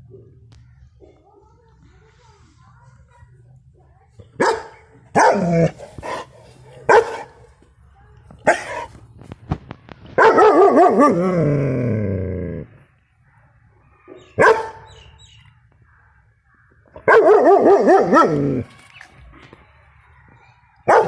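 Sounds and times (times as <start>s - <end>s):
dog barking: 4.4s - 5.5s, 6.9s - 7.4s, 10.2s - 11.2s, 14.1s - 14.9s, 17.0s - 18.4s.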